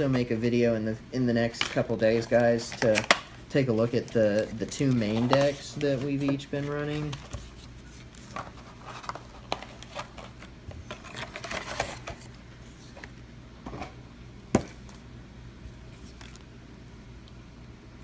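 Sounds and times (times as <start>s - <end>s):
packaging crinkling and rustling: 1.5s - 13.2s.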